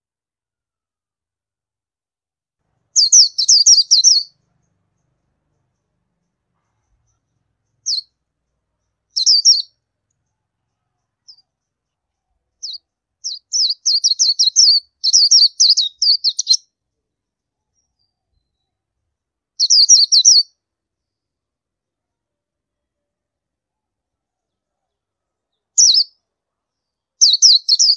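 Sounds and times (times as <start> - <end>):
bird chirping and twittering: 3.0 - 16.6, 19.6 - 20.5, 24.5 - 26.2, 27.2 - 27.9.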